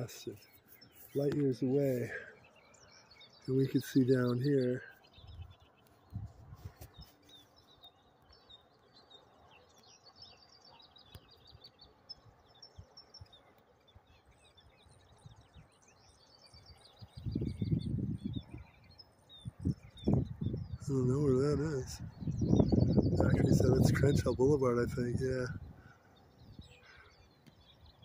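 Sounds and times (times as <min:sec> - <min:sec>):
songbirds chirping: 0:00.0 - 0:28.0
low rumble buffeting microphone: 0:05.2 - 0:07.0, 0:17.0 - 0:18.8, 0:19.4 - 0:26.7.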